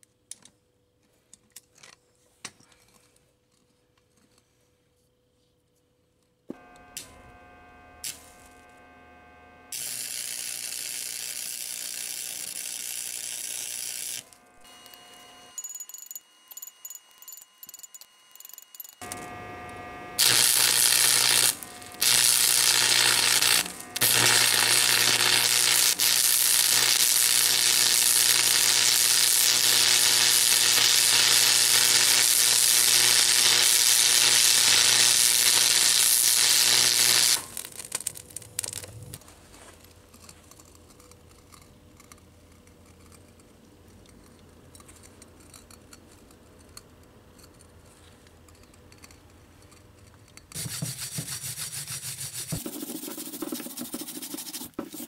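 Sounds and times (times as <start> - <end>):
welding arc crackling: 6.5 - 15.5, 19.0 - 39.2.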